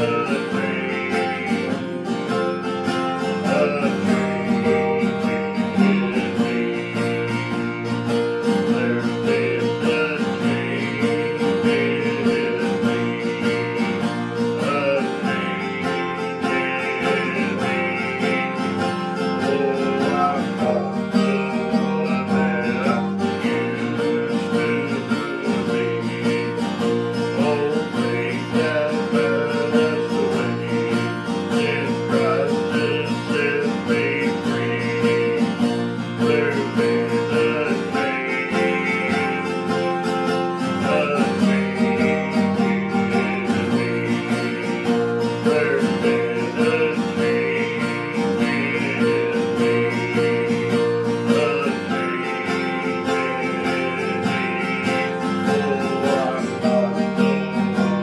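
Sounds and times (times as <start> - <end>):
acoustic guitar strumming: 0.0 - 58.0.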